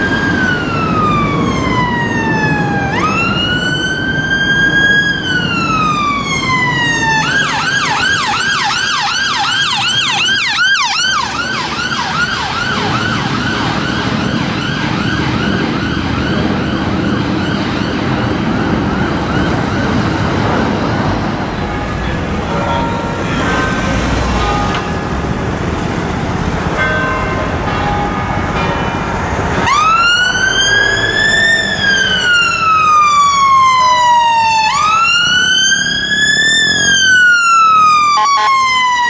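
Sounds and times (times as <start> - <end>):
electronic siren wail and yelp: 0.0 - 20.0, 29.6 - 39.0
traffic noise: 0.0 - 39.0.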